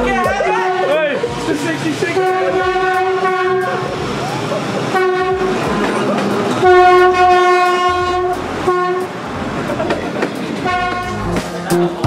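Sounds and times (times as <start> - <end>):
passing train rumble and clatter: 0.0 - 12.0
train horn blasts: 0.4 - 1.3, 2.1 - 4.0, 4.9 - 9.2, 10.6 - 11.3.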